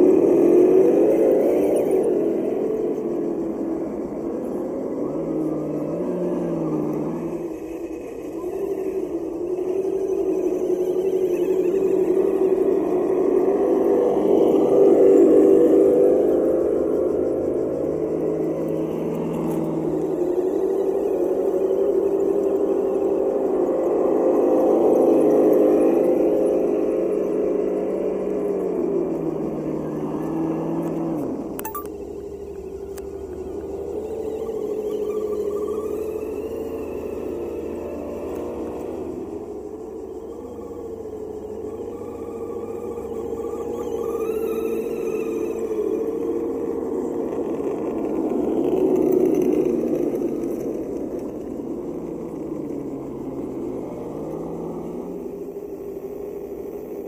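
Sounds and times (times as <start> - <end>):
toy truck electric motors whirring: 0.0 - 57.0
electric motor whining: 30.3 - 55.8.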